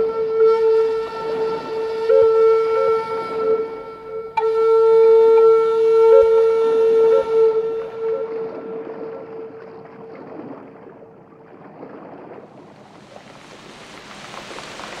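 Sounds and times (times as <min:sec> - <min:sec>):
flute holding a low note: 0:00.0 - 0:10.2.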